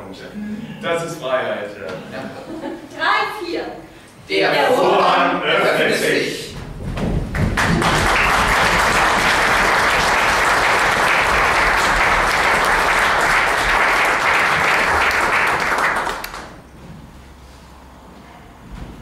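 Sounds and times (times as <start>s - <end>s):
audience applauding: 7.4s - 16.6s.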